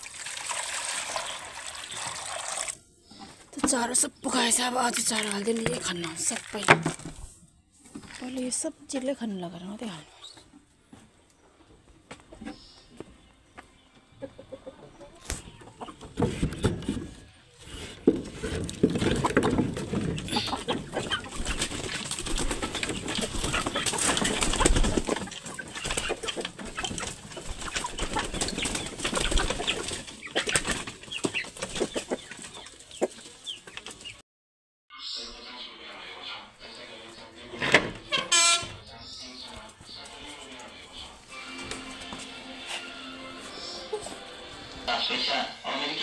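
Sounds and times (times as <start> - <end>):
hens clucking: 10.4 - 34.2, 35.2 - 46.0
wings flapping: 18.9 - 32.4.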